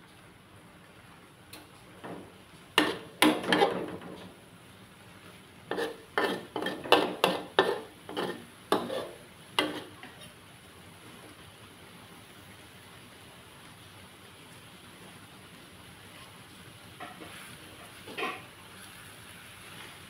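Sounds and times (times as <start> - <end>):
metal spatula scraping wok: 2.8 - 4.0, 5.7 - 10.4, 18.1 - 18.5.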